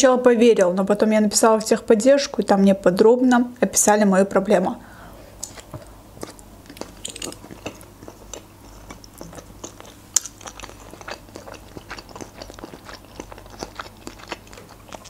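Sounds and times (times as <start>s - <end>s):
person chewing: 5.4s - 15.0s.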